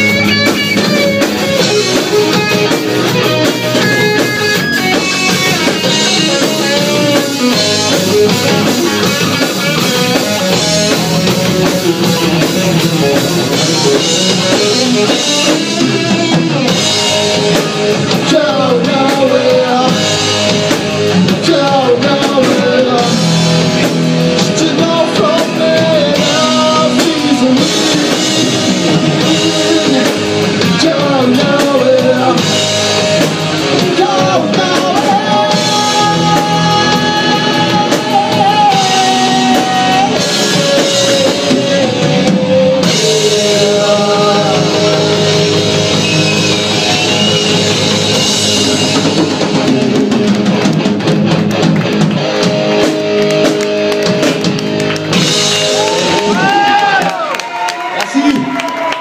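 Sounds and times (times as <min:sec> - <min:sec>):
bass guitar: 0:00.0 - 0:59.0
drum kit: 0:00.0 - 0:59.0
electric guitar: 0:00.0 - 0:59.0
person singing: 0:17.5 - 0:20.5, 0:21.1 - 0:23.5, 0:24.4 - 0:32.8, 0:33.4 - 0:48.0.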